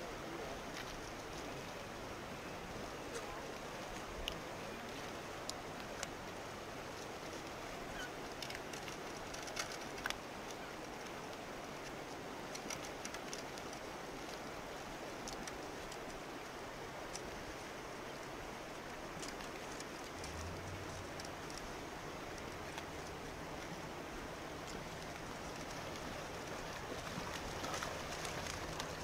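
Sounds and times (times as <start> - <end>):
river flowing over gravel: 0.0 - 29.0
light ticks: 3.1 - 7.6, 8.2 - 14.5, 15.2 - 16.2, 19.1 - 23.8.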